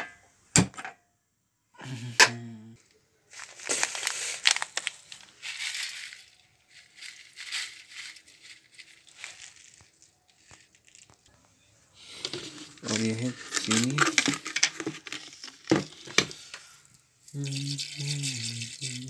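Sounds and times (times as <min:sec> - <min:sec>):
plastic packets crinkling: 0:03.3 - 0:11.4, 0:12.0 - 0:19.0.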